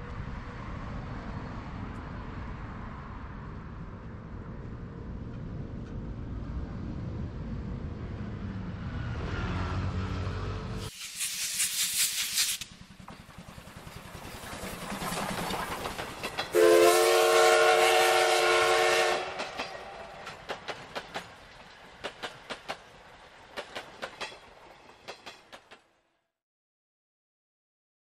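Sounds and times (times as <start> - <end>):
steam hissing: 10.8 - 16.6
train wheels clicking over rail joints: 10.9 - 16.6, 19.2 - 25.9
steam whistle: 16.5 - 19.4.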